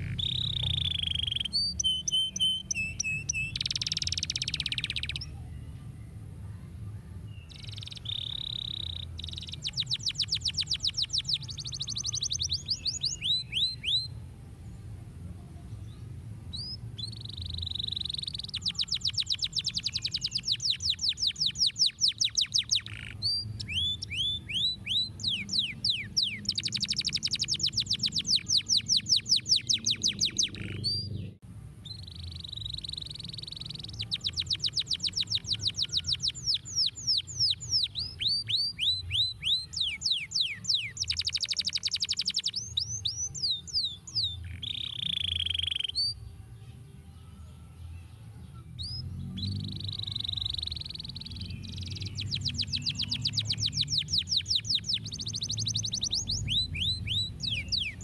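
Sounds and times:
canary singing: 0.0s - 5.6s, 7.3s - 14.2s, 15.9s - 58.0s.

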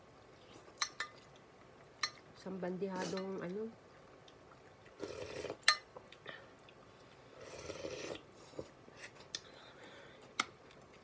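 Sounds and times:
noodle slurp: 4.9s - 5.7s, 7.3s - 8.3s.

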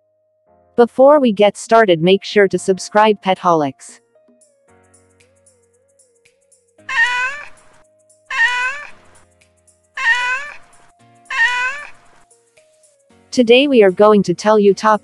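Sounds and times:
faint background music: 0.8s - 5.4s, 6.8s - 15.0s
cat meowing: 6.9s - 7.6s, 8.3s - 9.0s, 10.0s - 10.6s, 11.3s - 12.0s.

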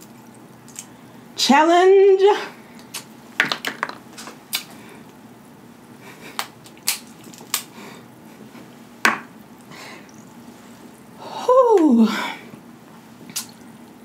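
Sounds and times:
wet mouth clicks and smacks: 4.5s - 4.7s, 13.3s - 13.7s
crab shells snapping: 6.4s - 7.7s.

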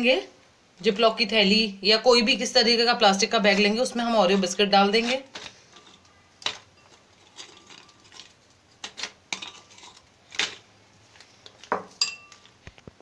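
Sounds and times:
glass bowl clinking: 6.6s - 8.2s, 11.7s - 12.5s.

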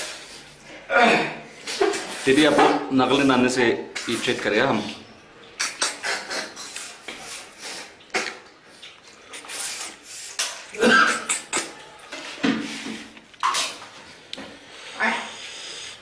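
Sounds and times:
wet slurping of snails eaten: 5.6s - 11.8s.

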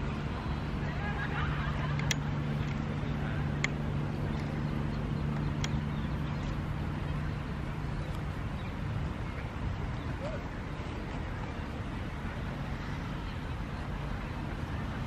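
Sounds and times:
low motor hum: 0.0s - 15.0s
faint sharp clicks: 1.8s - 2.9s, 3.5s - 6.6s.

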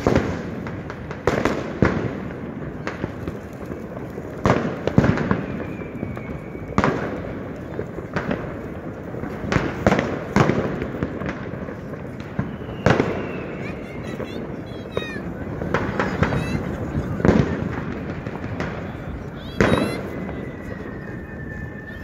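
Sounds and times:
firework whistle: 0.0s - 22.0s
fireworks bangs and crackles: 0.0s - 22.0s.

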